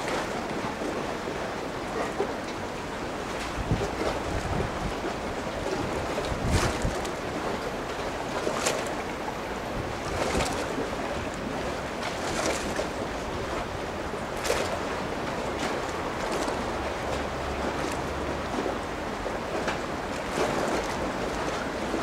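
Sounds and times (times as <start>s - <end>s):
rushing water: 0.0s - 22.0s
wind gusts: 0.0s - 22.0s.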